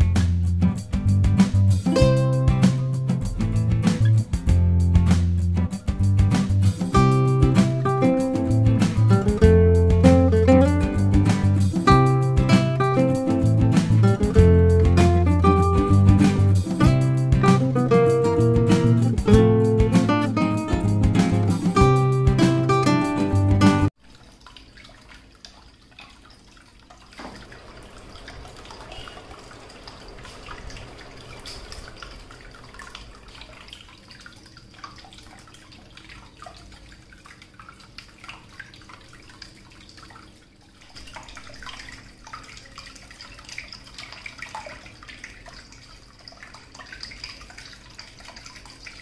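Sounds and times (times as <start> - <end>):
water splashing into basin: 0.0 - 49.0
water trickling down fountain: 23.9 - 49.0.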